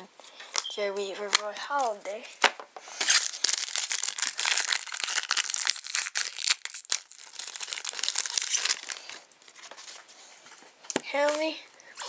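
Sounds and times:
foil wrapper tearing and crinkling: 3.0 - 10.0.

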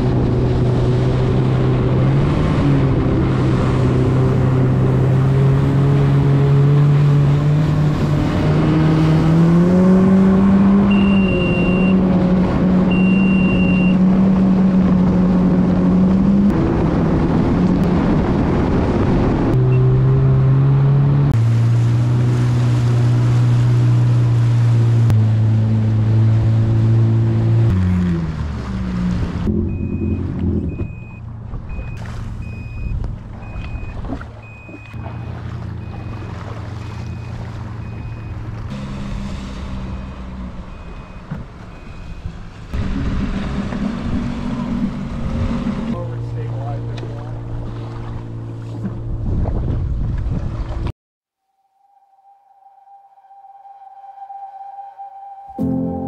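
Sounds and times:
jet ski engine running: 0.0 - 50.9
water rushing past hull: 0.0 - 50.9
short high beeps: 10.9 - 12.0, 12.9 - 14.0, 29.7 - 38.4.

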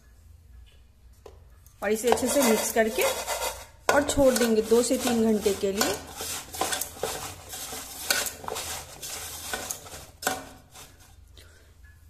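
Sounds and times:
vegetables tossed in metal bowl: 1.8 - 11.2.

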